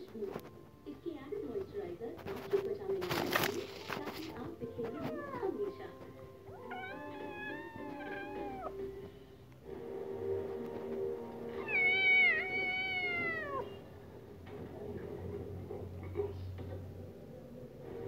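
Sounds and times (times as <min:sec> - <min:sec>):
kitten meowing: 0:04.8 - 0:05.7, 0:06.5 - 0:08.8, 0:11.6 - 0:13.8.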